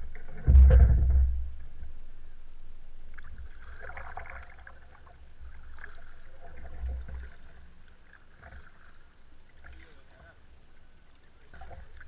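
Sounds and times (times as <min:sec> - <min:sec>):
steady low rumble: 0:00.0 - 0:08.0.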